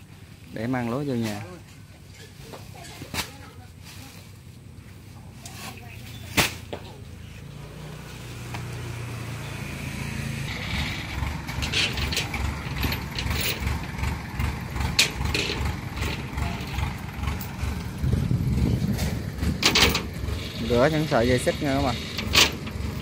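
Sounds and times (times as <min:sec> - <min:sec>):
combine harvester engine running: 0:00.0 - 0:23.0
sharp metallic clanks: 0:10.5 - 0:17.9, 0:19.0 - 0:23.0.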